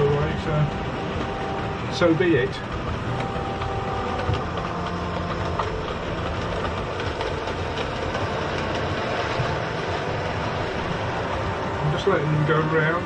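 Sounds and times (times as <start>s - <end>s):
wheels clicking over rails: 0.0s - 13.0s.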